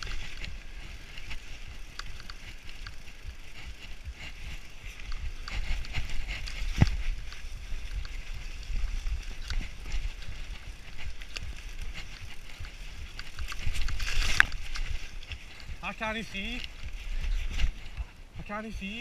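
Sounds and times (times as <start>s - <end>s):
bike rattling and knocking: 0.0s - 19.0s
bike tyres rolling over dirt: 0.0s - 19.0s
wind rumble on microphone: 0.0s - 19.0s.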